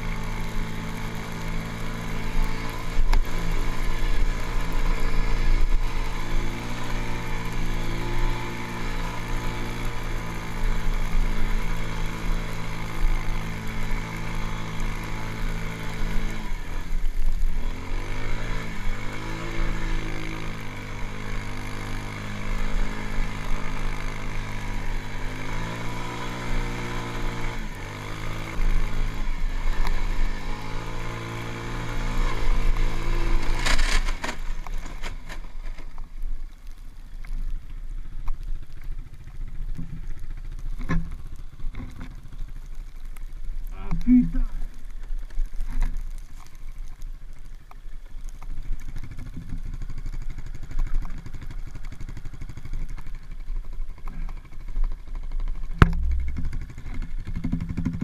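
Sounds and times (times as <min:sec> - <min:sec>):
quad engine revving: 0:00.0 - 0:35.4, 0:54.0 - 0:58.0.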